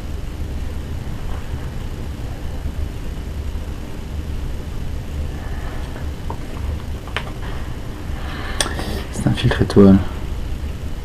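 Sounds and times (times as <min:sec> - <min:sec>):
steady low rumble: 0:00.0 - 0:11.0.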